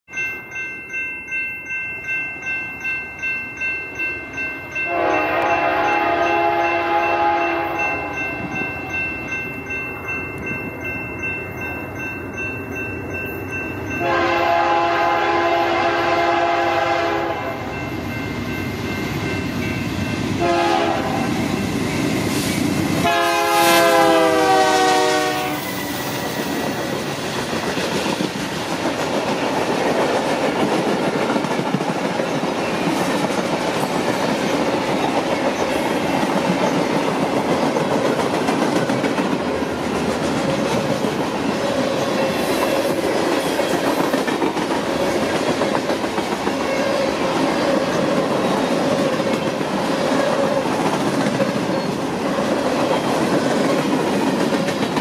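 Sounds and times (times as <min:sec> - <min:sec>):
crossing bell clanging: 0:00.1 - 0:55.0
rumble of passing train: 0:00.2 - 0:55.0
locomotive air horn: 0:04.9 - 0:08.2, 0:14.0 - 0:17.7, 0:20.4 - 0:21.3, 0:23.0 - 0:26.0.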